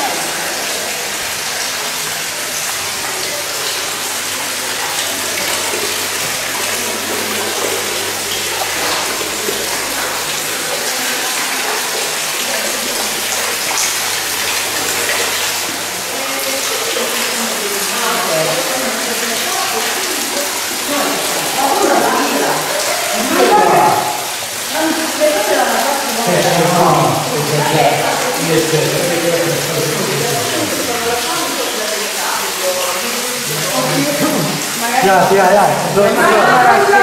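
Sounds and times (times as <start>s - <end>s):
running water: 0.0s - 37.0s
faint voices: 16.0s - 37.0s.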